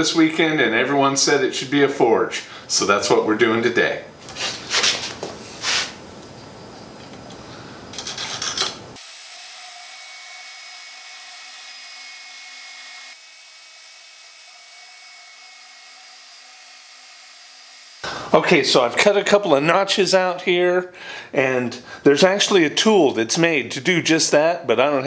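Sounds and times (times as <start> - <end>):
bandsaw cutting metal: 8.1 - 18.0.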